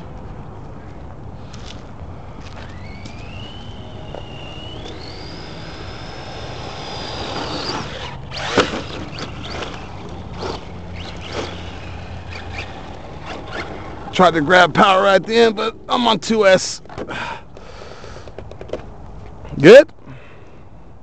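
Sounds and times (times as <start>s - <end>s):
electric motor whine rising: 1.4s - 15.7s.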